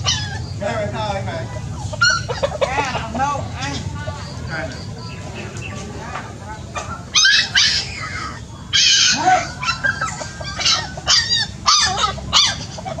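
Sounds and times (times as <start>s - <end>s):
puppy crying: 0.0s - 0.6s, 1.4s - 3.1s, 6.8s - 13.0s
hen squawking: 0.0s - 13.0s.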